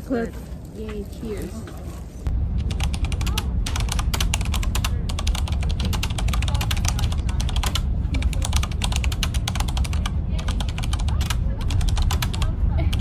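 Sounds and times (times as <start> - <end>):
computer keyboard typing: 2.6 - 13.0.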